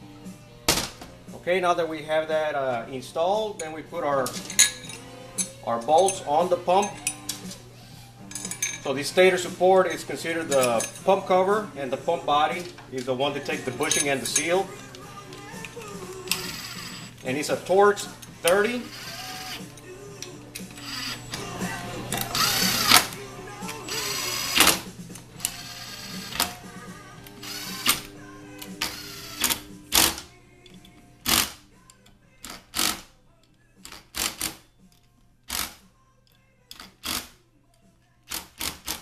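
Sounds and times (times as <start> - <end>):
cordless drill whining: 15.7 - 17.2, 18.6 - 19.7, 20.6 - 30.1
drill short sharp bursts: 16.3 - 17.2, 18.7 - 19.7, 22.3 - 23.2, 23.8 - 26.5, 27.4 - 28.1, 28.8 - 30.2.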